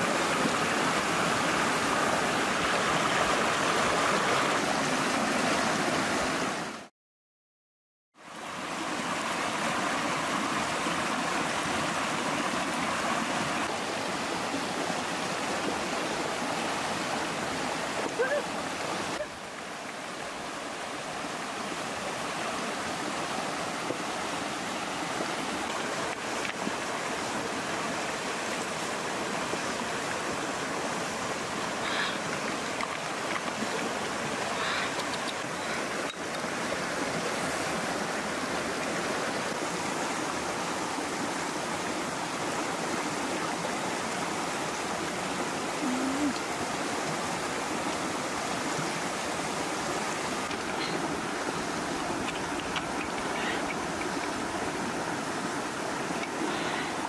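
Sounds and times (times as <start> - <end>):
river rushing over stones: 0.0 - 6.9, 8.2 - 57.0
faint clicks: 34.9 - 36.4, 52.2 - 54.4.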